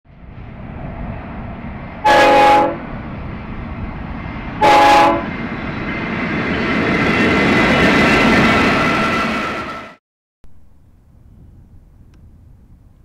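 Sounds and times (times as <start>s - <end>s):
train rumbling: 0.1s - 13.0s
locomotive air horn blasts: 2.0s - 2.8s, 4.6s - 5.3s.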